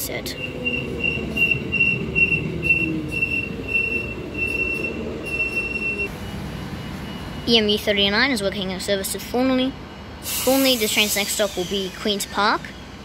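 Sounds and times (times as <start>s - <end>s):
train rumble and motor hum: 0.0s - 10.2s
train wheel squeal: 0.3s - 6.1s, 10.3s - 13.0s.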